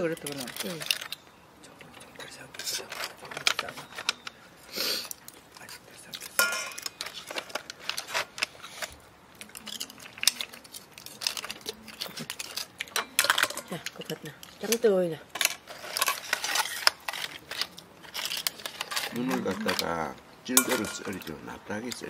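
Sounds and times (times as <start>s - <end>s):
utensils clattering on metal pot: 6.4s - 8.9s, 9.6s - 22.0s
person speaking: 19.1s - 22.0s.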